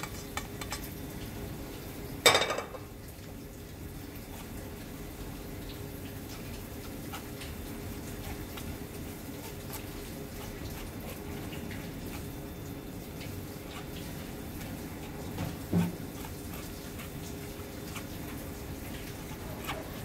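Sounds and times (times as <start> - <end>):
low background hum: 0.0 - 20.0
spoon scraping through wire sieve: 13.6 - 20.0.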